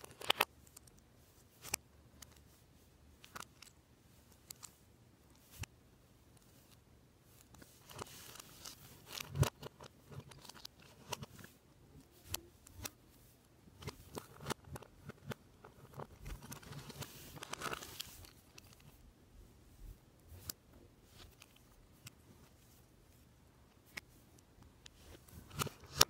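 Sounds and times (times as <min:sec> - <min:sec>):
plastic parts clicking together: 0:03.2 - 0:03.8, 0:07.5 - 0:13.0, 0:13.8 - 0:19.0
light handling rustle: 0:06.3 - 0:26.0.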